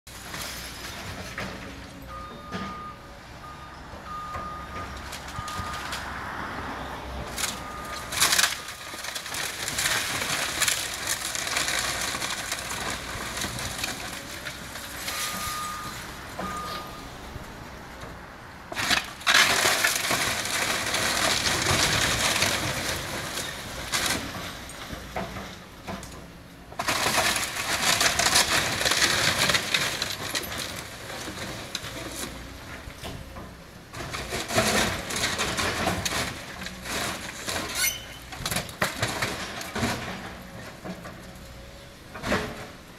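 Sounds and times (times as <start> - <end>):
demolition debris crashing: 0.1 - 2.9, 4.1 - 17.3, 18.7 - 42.9
reversing alarm beeps: 2.1 - 6.0, 15.1 - 17.1.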